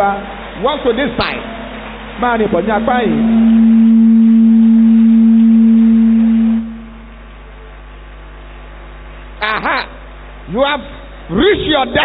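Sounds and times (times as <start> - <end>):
loud steady low tone: 1.6 - 7.8.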